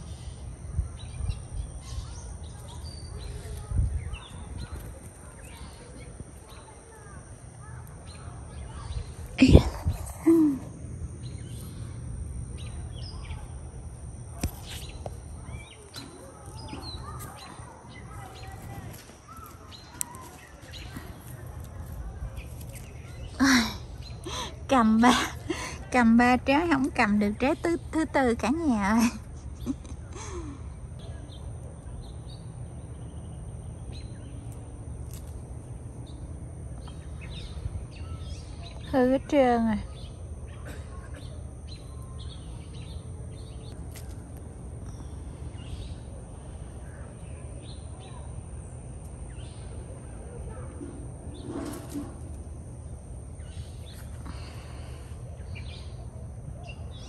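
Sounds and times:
faint bird chirps: 0.0 - 25.1
steady low rumble: 0.0 - 28.0
outdoor background noise: 0.0 - 57.0
small birds chirping: 0.0 - 57.0.

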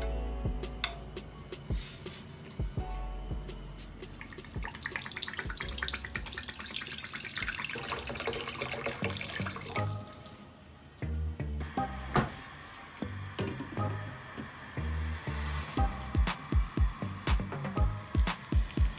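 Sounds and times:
water pouring into a pot: 4.2 - 10.5, 15.1 - 18.9.

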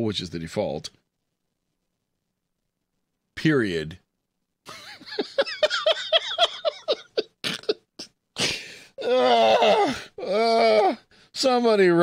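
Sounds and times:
man laughing in high bursts: 4.7 - 8.6.

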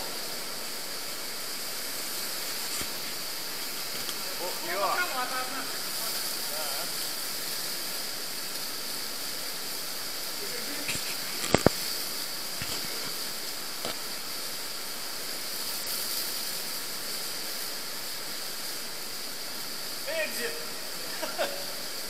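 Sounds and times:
underground river rushing: 0.0 - 22.0.

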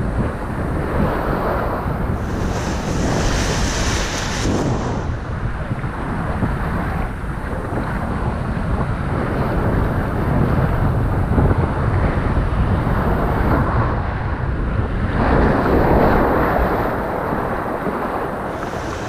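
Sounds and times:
wind buffeting microphone: 0.0 - 19.0
water rushing down slide: 2.1 - 6.2.

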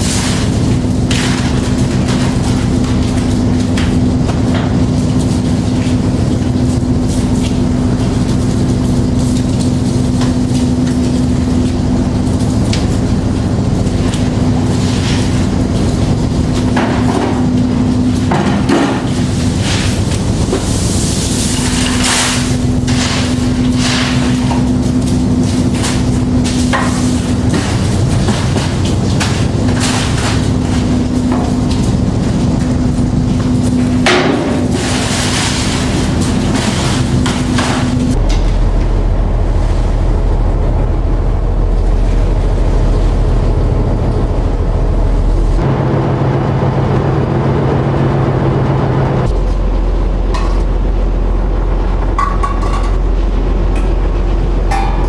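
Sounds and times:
machinery humming: 0.0 - 55.0
hissing rushes of water: 19.0 - 38.3.

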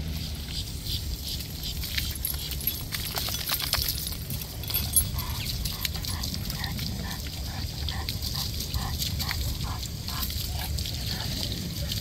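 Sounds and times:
garden hose spraying water: 0.0 - 12.0.

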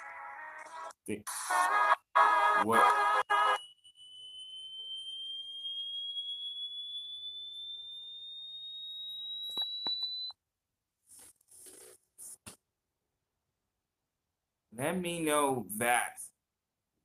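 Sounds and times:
high-pitched electronic sine tone rising: 2.6 - 10.3.

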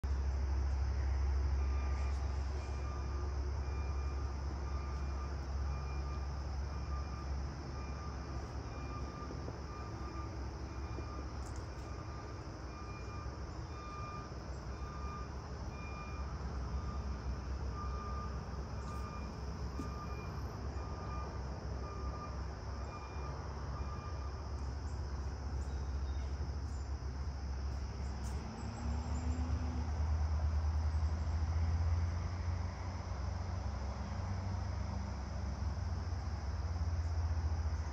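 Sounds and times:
faint high beeps: 1.5 - 24.7.

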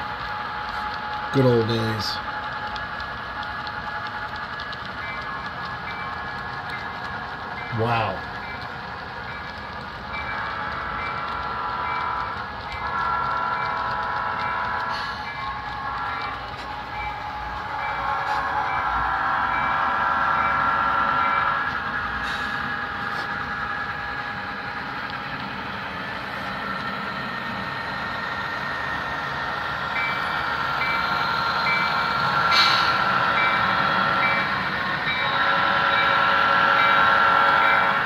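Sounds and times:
model locomotive engine sound: 0.0 - 38.0.

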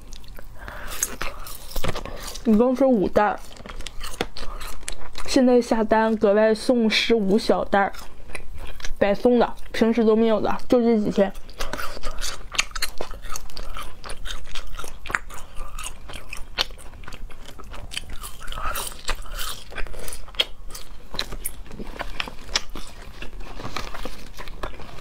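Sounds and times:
crunchy snack chewing: 0.0 - 2.6, 3.2 - 5.4, 7.8 - 9.0, 11.3 - 25.0.

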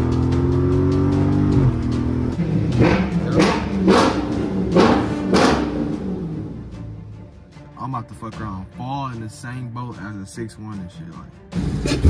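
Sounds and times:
car engine accelerating: 0.0 - 7.2
music beat with sharp hits: 0.0 - 12.0.

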